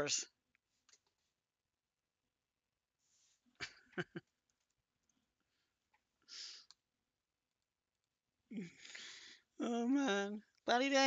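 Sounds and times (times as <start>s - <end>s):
person breathing: 5.4s - 6.8s, 8.6s - 9.6s.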